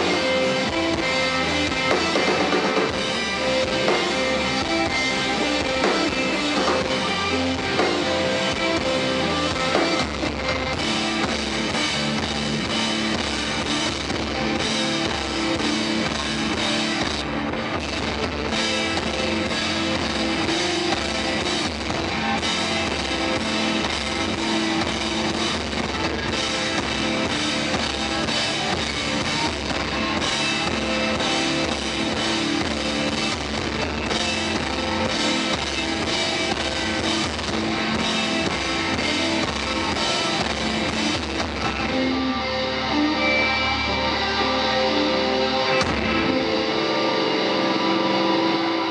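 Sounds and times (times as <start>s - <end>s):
drum kit: 0.0s - 48.9s
electric guitars: 0.0s - 48.9s.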